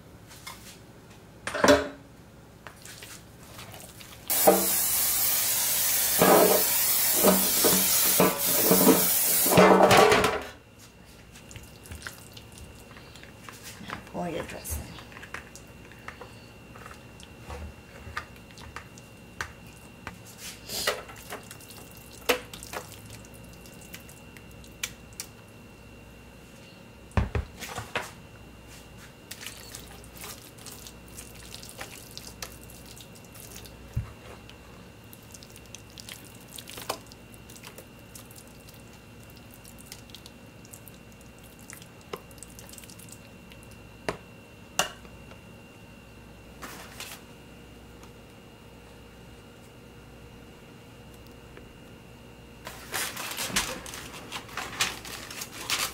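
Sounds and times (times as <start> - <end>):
wet squishing mixture: 2.7 - 4.3, 11.0 - 25.6, 29.2 - 44.0.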